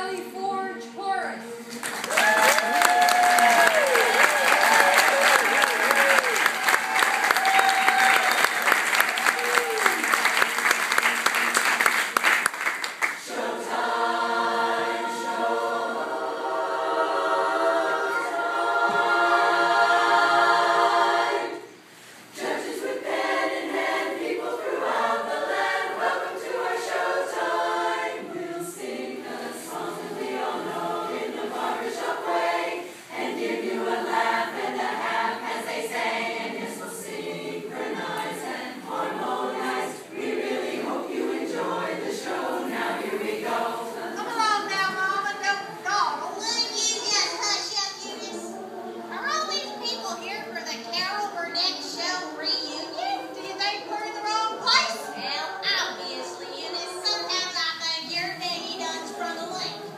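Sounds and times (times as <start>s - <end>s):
applause: 1.7s - 13.2s
women's chorus singing a cappella: 8.1s - 59.9s.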